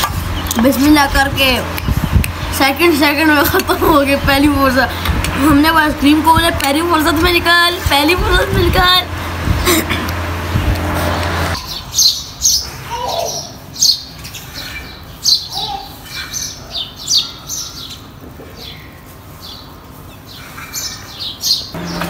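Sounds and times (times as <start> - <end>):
low hum: 0.0 - 11.6, 21.8 - 22.0
steady rushing noise: 0.0 - 11.6
birds chirping: 0.0 - 22.0.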